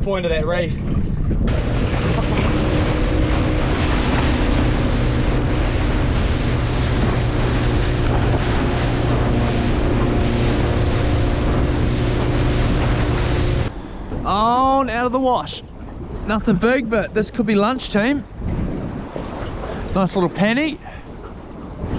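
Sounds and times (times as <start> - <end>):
water rushing along hull: 0.0 - 21.9
wind buffeting microphone: 0.0 - 21.9
boat engine running: 0.8 - 21.9.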